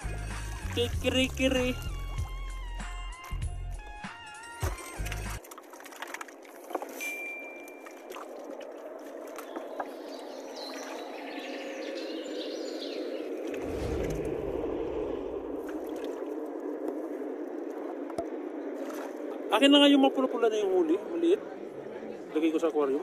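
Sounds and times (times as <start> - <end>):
water sloshing and splashing: 0.0 - 2.4, 4.6 - 11.7, 13.3 - 19.6
deep rumble: 13.5 - 19.5.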